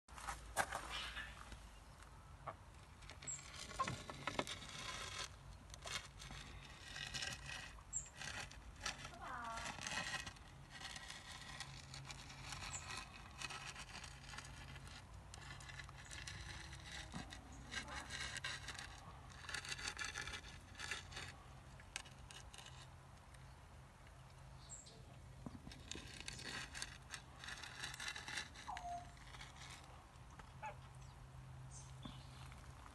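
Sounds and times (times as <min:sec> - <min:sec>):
rustling: 0:00.1 - 0:31.1
short bird calls: 0:00.8 - 0:01.5.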